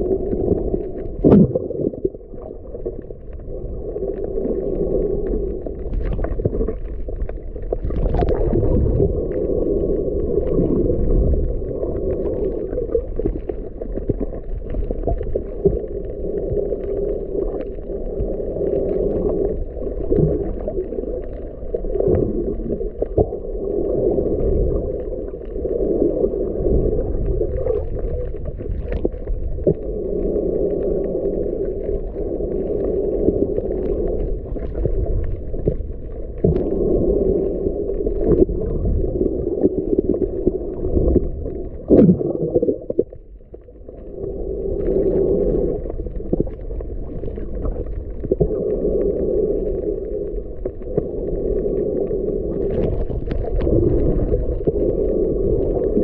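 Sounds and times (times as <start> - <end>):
underwater rumbling water: 0.0 - 56.0.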